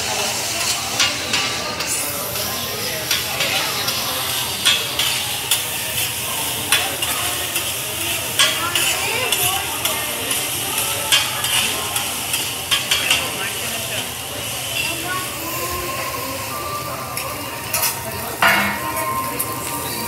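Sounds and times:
rice sizzling on a griddle: 0:00.0 - 0:20.0
metal spatulas scraping and clacking: 0:00.6 - 0:06.1, 0:11.1 - 0:13.3, 0:17.2 - 0:20.0.

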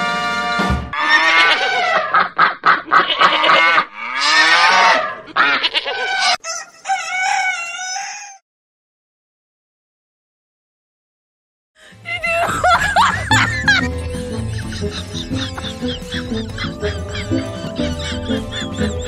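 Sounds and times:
animals bleating: 0:01.0 - 0:02.0, 0:02.9 - 0:06.4
rooster crowing: 0:05.9 - 0:08.4.

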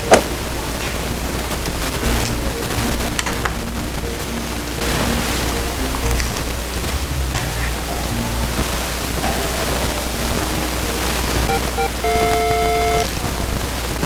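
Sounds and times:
short electronic beeps: 0:11.5 - 0:13.1
video game level up chime: 0:11.5 - 0:13.1.

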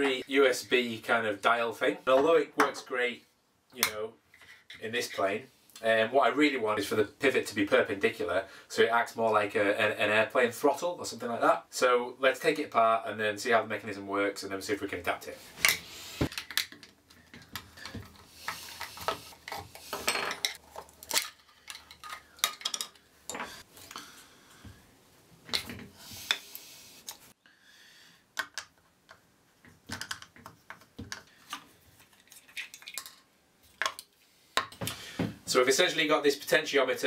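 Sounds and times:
plastic clicks taps and knocks: 0:29.8 - 0:31.3.

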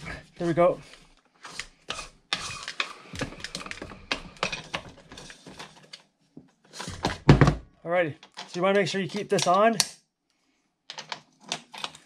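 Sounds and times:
plastic and metal clicks and rattles: 0:08.2 - 0:09.9, 0:10.9 - 0:12.0.

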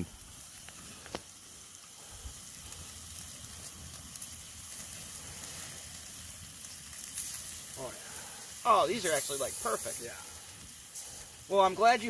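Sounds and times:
fire popping: 0:00.0 - 0:12.0
steaks sizzling on grill: 0:00.0 - 0:12.0.

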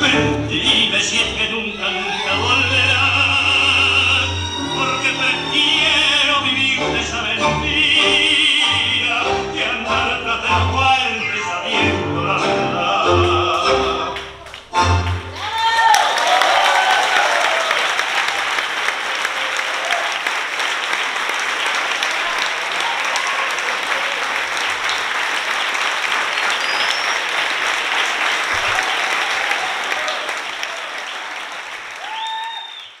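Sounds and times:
audience applauding: 0:13.2 - 0:33.0.

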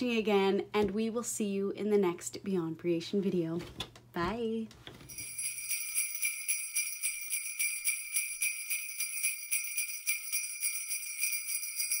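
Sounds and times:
jingle bells shaken: 0:05.1 - 0:12.0.

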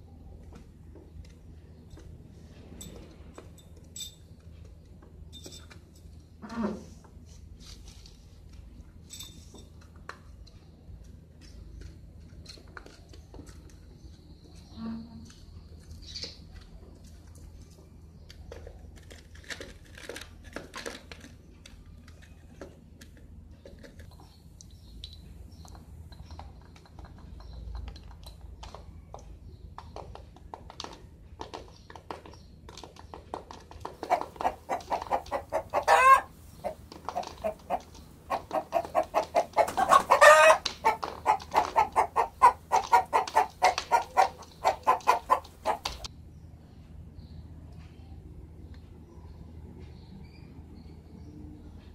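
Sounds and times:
chicken clucking: 0:34.0 - 0:46.1
chicken squawks: 0:34.1 - 0:46.0.

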